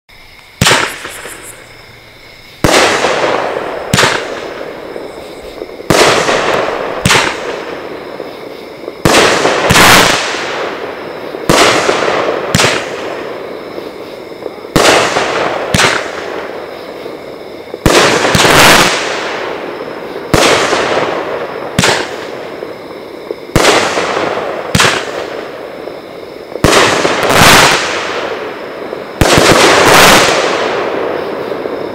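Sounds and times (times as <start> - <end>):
firework crackle and hiss: 0.1 - 31.9
firework shots banging: 0.6 - 1.8, 2.6 - 13.4, 14.4 - 16.6, 17.8 - 19.6, 20.3 - 22.6, 23.5 - 25.5, 26.6 - 31.3.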